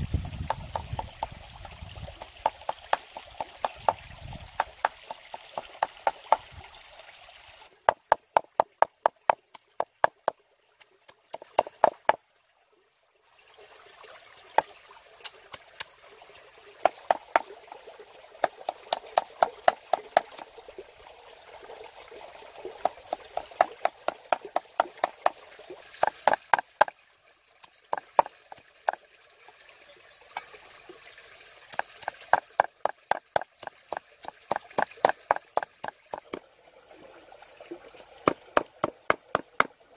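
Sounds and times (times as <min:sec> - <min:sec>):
stream trickling: 0:00.0 - 0:39.9
cleaver chopping on wooden board: 0:00.3 - 0:04.0, 0:04.6 - 0:06.4, 0:07.9 - 0:10.4, 0:11.3 - 0:12.2, 0:16.8 - 0:17.5, 0:18.4 - 0:20.4, 0:22.8 - 0:25.4, 0:26.0 - 0:26.9, 0:31.8 - 0:36.4, 0:38.3 - 0:39.7.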